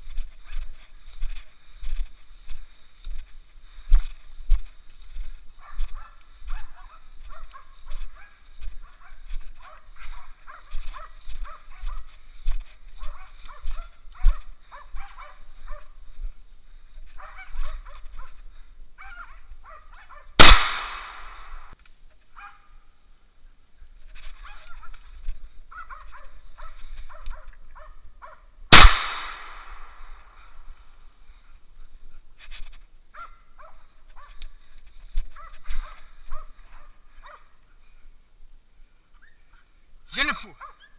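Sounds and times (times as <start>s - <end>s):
dogs barking at a distance: 5.4s - 12.3s, 12.9s - 16.1s, 17.1s - 20.4s, 22.3s - 22.8s, 25.7s - 28.6s, 33.1s - 34.6s, 35.2s - 37.6s, 40.5s - 40.9s
gunshots with echo: 20.4s - 21.7s, 28.7s - 30.0s.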